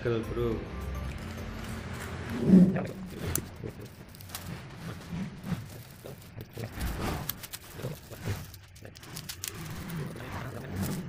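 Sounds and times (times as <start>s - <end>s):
plastic wrapping rustling: 1.0s - 11.0s
small clicks: 5.4s - 11.0s.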